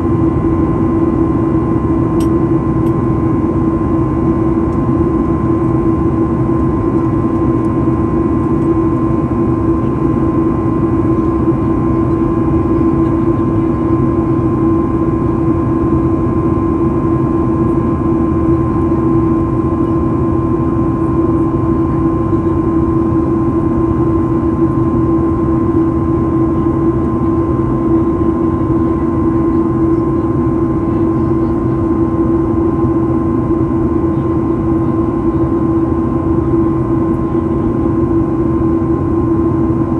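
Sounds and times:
jet engines humming: 0.0s - 39.9s.

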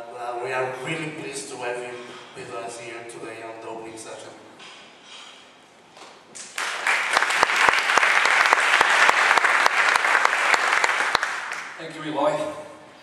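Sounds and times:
audience applauding: 6.4s - 11.8s.

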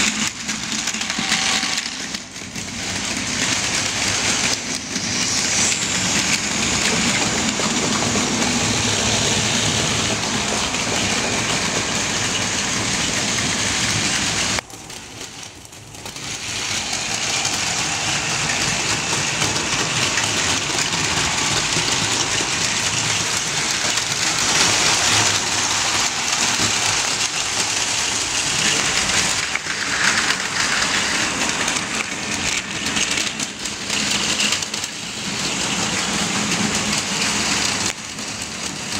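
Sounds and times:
toy train motors whirring: 0.0s - 38.8s
wheels rattling on plastic rails: 10.8s - 38.9s.

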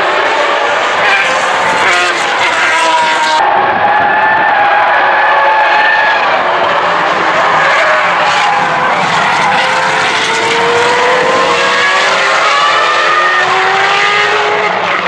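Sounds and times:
racing car engines revving: 0.0s - 15.0s.

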